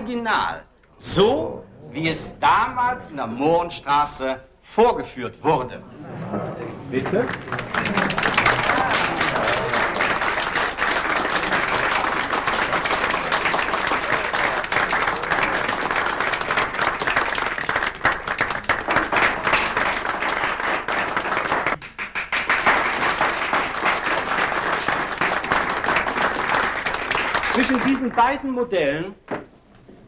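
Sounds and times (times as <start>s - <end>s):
audience applauding: 6.9s - 28.6s.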